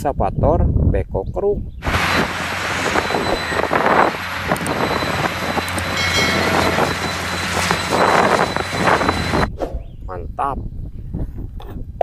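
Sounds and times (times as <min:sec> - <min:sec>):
excavator diesel engine running: 0:01.8 - 0:09.5.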